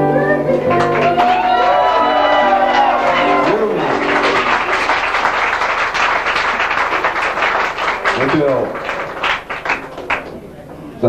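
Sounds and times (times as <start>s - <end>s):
voices singing: 0.0s - 4.6s
audience applauding: 0.7s - 10.6s.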